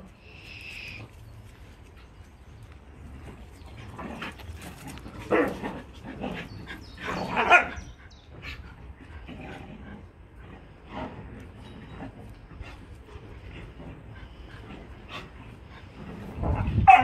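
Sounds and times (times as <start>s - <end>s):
dogs play barking: 3.8s - 17.0s.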